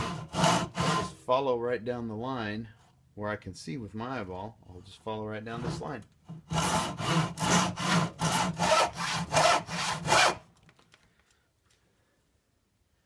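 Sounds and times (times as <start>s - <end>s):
hand saw cutting wood: 0.0s - 1.2s, 5.5s - 10.5s.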